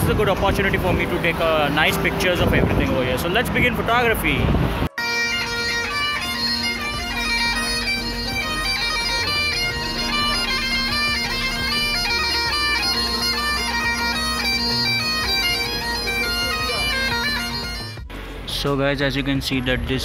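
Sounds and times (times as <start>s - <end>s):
bagpipes playing: 4.8s - 18.1s.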